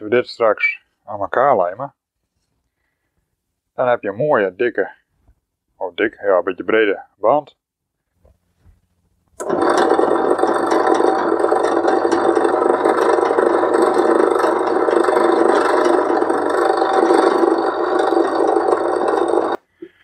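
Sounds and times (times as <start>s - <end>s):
drill press boring into wood: 9.4s - 19.6s.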